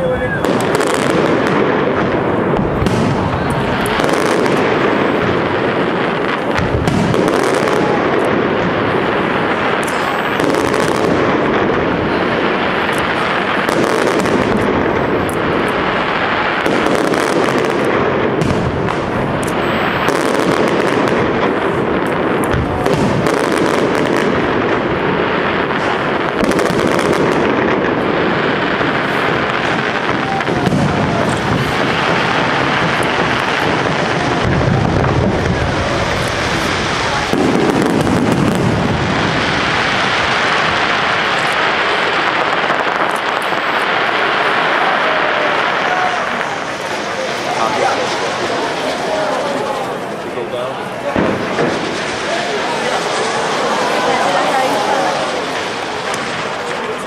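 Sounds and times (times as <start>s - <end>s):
fireworks bursting: 0.0s - 57.0s.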